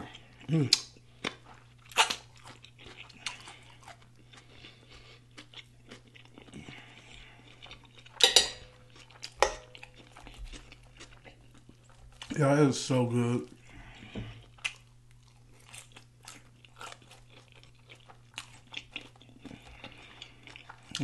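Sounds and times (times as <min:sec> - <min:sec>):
man chewing crunchy food: 0:00.0 - 0:21.0
sharp fork clicks on plate: 0:08.2 - 0:08.6.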